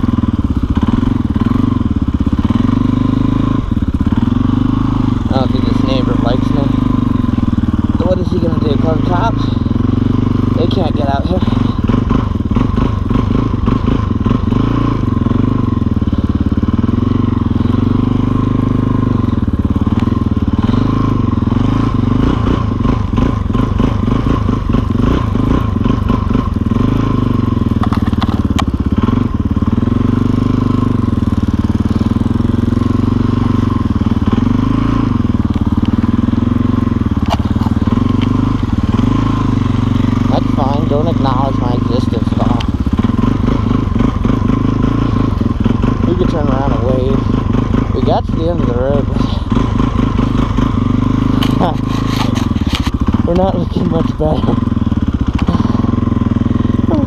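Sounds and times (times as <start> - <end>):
motorcycle engine running: 0.0 - 57.0
rough knocking and crunching: 27.6 - 28.8, 37.2 - 38.9, 51.4 - 53.5.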